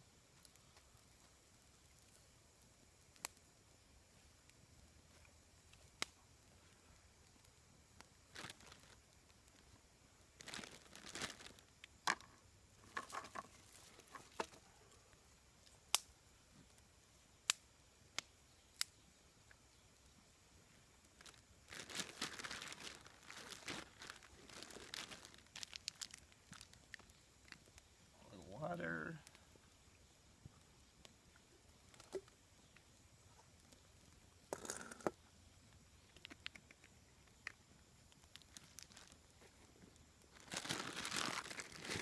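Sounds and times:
plastic bag crinkling: 8.3 - 9.0, 10.4 - 11.6, 21.2 - 27.1, 38.4 - 39.2, 40.3 - 42.0.

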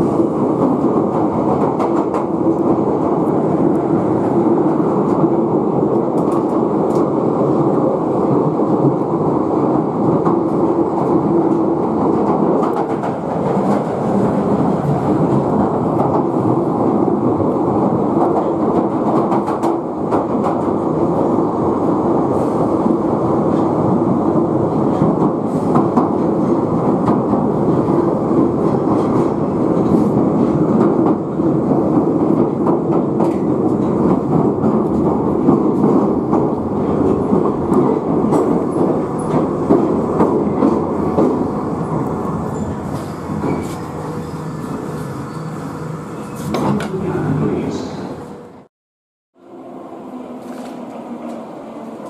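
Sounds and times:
train rumble in tunnel: 0.0 - 48.7, 49.4 - 52.0
rail clatter: 10.1 - 16.7.

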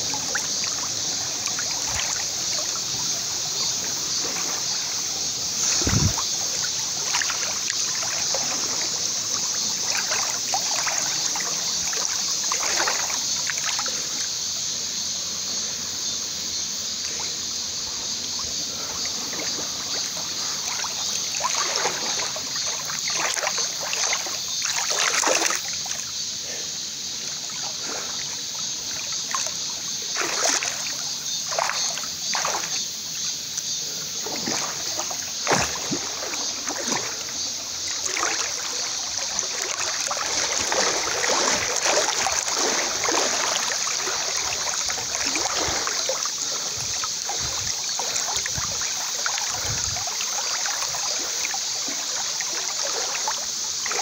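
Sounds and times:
water sloshing and splashing: 0.0 - 14.2, 18.3 - 54.0
small waterfall rushing: 34.2 - 54.0.

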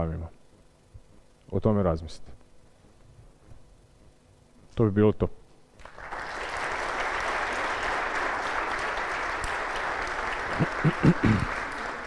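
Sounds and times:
audience applauding: 5.8 - 12.0.

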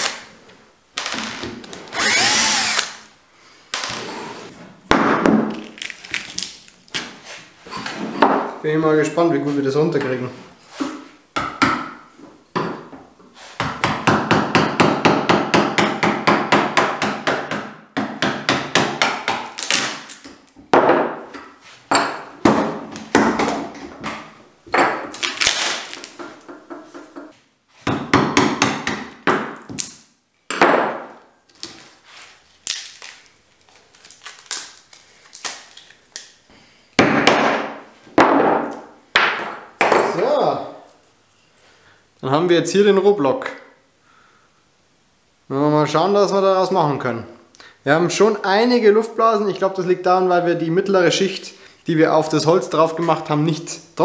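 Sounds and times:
hammer striking chisel: 13.6 - 19.5, 27.9 - 29.6.

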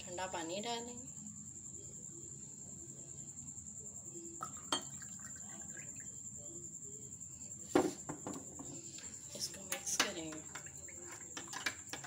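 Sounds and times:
glass clink: 4.4 - 5.1
water trickling into glass: 4.4 - 6.2.

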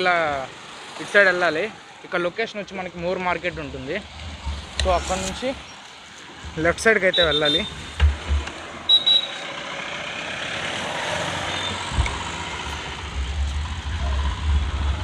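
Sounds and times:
vehicle passing: 7.7 - 15.0
short high beep: 8.9 - 9.5
wind rumble on microphone: 11.8 - 15.0.

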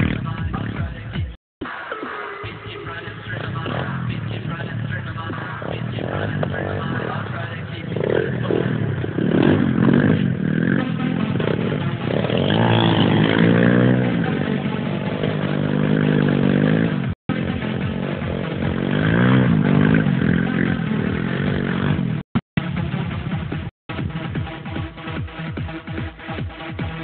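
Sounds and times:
pit bike engine revving: 0.0 - 1.0, 2.5 - 22.2.

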